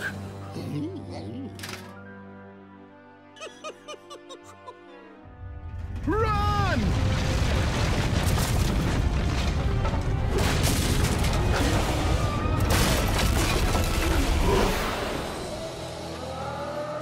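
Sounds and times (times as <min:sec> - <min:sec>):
music: 0:00.0 - 0:17.0
debris falling: 0:05.7 - 0:15.3
wooden beam smashing apart: 0:06.8 - 0:14.9.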